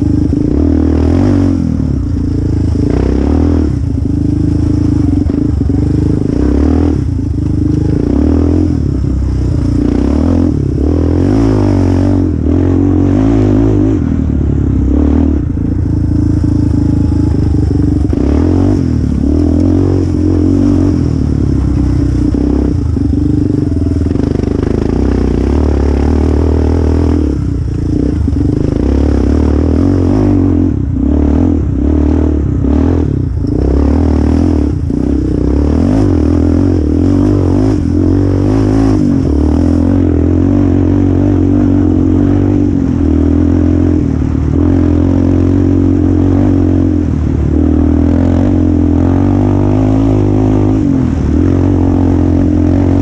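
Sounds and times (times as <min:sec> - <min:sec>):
quad engine revving: 0:00.0 - 0:53.0.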